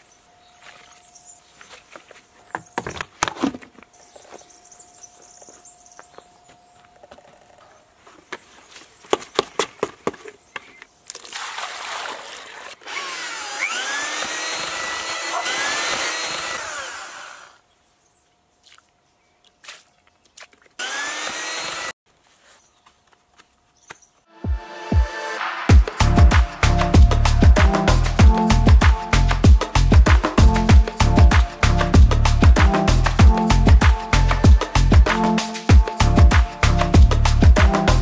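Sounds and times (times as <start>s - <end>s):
electric drill mixing mortar: 11.2s - 17.6s, 20.8s - 22.0s.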